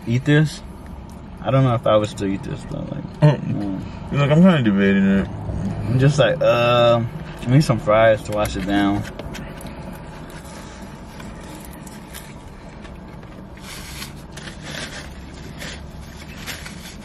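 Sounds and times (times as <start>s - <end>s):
low hum: 0.0s - 17.0s
paper packaging crinkling: 9.2s - 17.0s.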